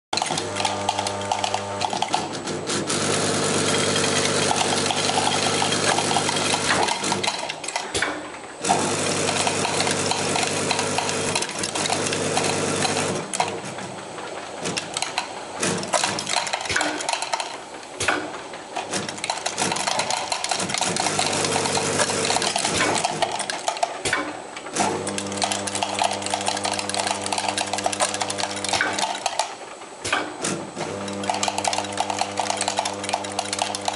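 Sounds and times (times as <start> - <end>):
tablets rattling into plastic bottles: 4.0 - 7.8, 8.8 - 13.6, 14.7 - 17.6, 18.8 - 24.0, 25.0 - 29.5, 31.0 - 33.9.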